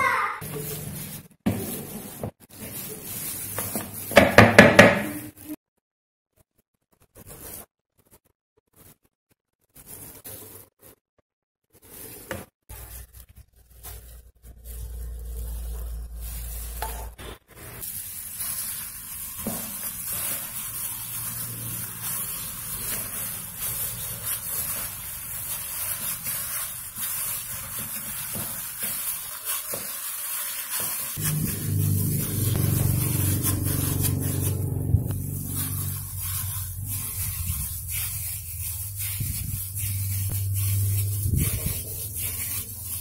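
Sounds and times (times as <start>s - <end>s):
gloved hand squishing food: 0.2s - 4.2s, 12.7s - 17.2s, 17.8s - 43.0s
low hum: 31.2s - 37.7s.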